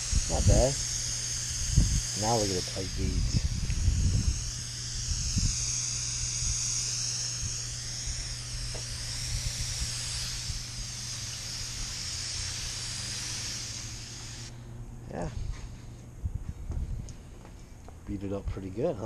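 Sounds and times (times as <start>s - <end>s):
hose nozzle mist spray hissing: 0.0s - 14.5s.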